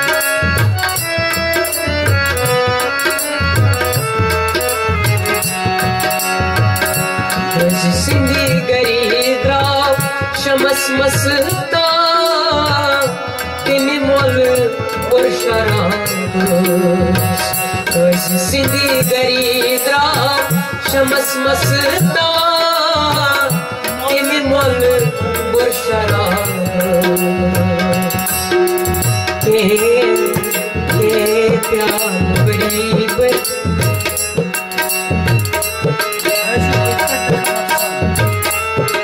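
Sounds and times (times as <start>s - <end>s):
steady drum rhythm: 0.0s - 39.0s
gliding melody: 33.8s - 39.0s.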